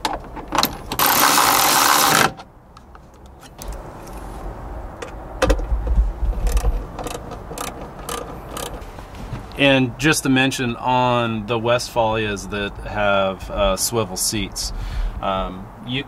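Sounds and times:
electric ratchet driving bolt: 0.6 - 2.4, 6.4 - 8.9
hand ratchet clicking: 6.4 - 8.8.

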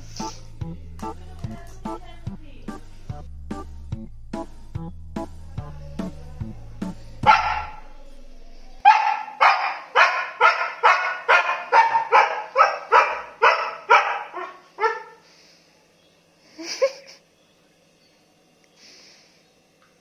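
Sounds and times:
small dog barking: 7.2 - 7.8, 8.8 - 15.2.

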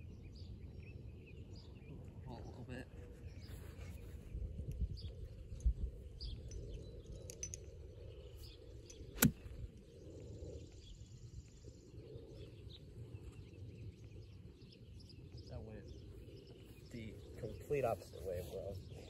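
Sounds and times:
birds chirping faintly: 0.1 - 19.0
golf iron striking ball: 9.0 - 9.6.

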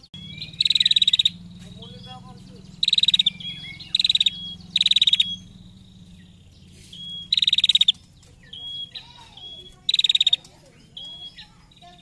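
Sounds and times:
bird chattering call: 0.0 - 12.0
bird whistled notes: 0.0 - 12.0.

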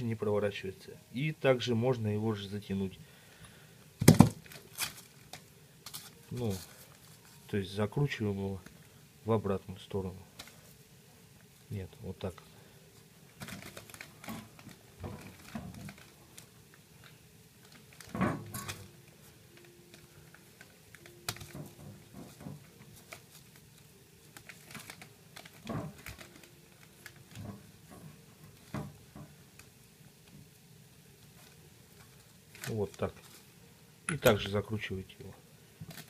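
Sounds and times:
newspaper rustling: 4.0 - 7.8, 13.3 - 28.9, 31.1 - 33.6.

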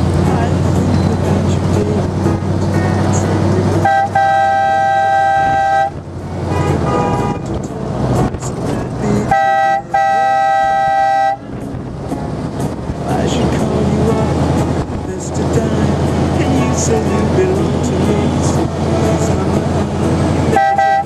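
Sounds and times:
vehicle engine running: 0.0 - 21.0
vehicle horn honking: 3.8 - 7.6, 9.2 - 11.5, 20.5 - 21.0.

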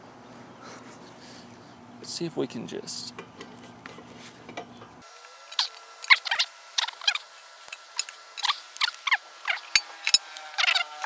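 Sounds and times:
fast high-pitched squeaky chirps: 5.5 - 11.0.

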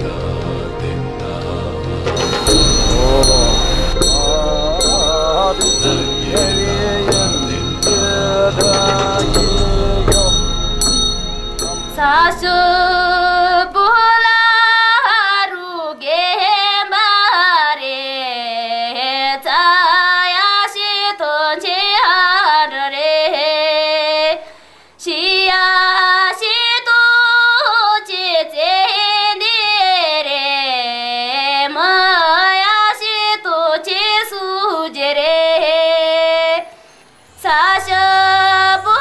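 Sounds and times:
woman singing unaccompanied: 11.6 - 36.7, 37.4 - 39.0.

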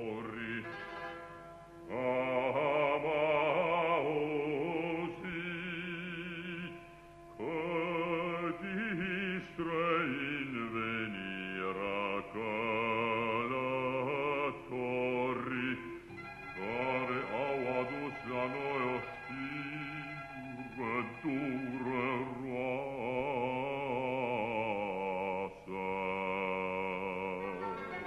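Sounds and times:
operatic voices singing: 7.4 - 28.0.

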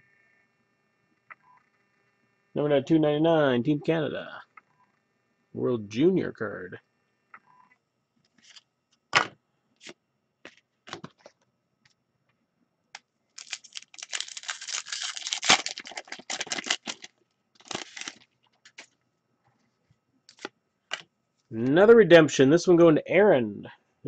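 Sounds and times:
cards flicking and rustling: 9.2 - 11.4, 13.4 - 18.9, 20.3 - 21.0
paper packaging crinkling and tearing: 13.4 - 18.9.

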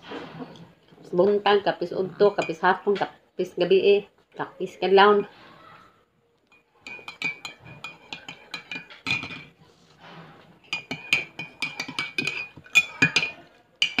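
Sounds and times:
spoon clinking in ceramic mug: 6.5 - 9.5, 10.7 - 14.0.

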